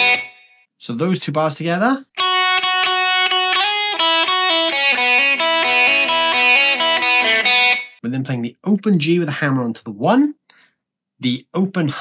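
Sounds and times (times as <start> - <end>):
electric guitar blues lick: 0.0 - 0.4, 2.1 - 8.0.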